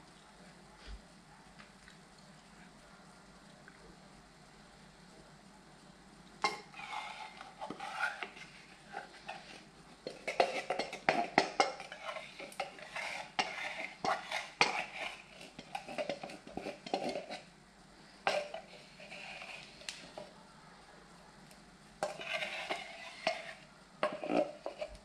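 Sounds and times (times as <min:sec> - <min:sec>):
spoon scraping a bowl: 0:06.4 - 0:17.5, 0:18.2 - 0:20.0, 0:22.0 - 0:25.0.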